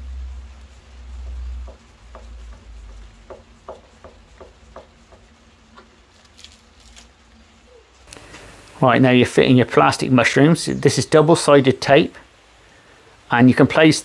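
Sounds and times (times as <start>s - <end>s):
plastic wrapping crinkling: 6.0s - 7.4s.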